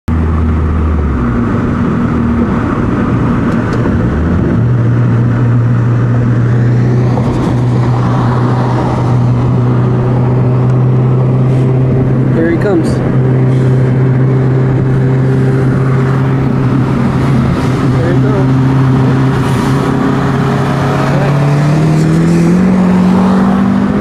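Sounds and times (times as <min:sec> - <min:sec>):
car engine running hard: 0:00.1 - 0:24.0.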